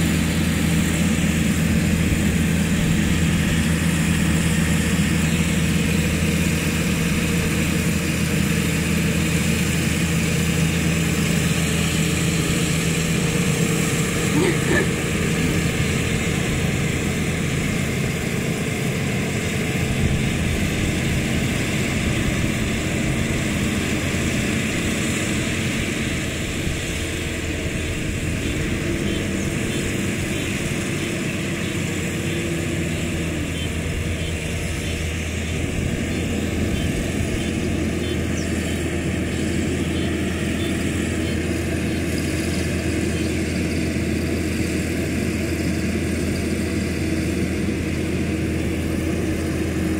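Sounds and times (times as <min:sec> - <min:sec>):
combine harvester engine drone: 0:00.0 - 0:49.9.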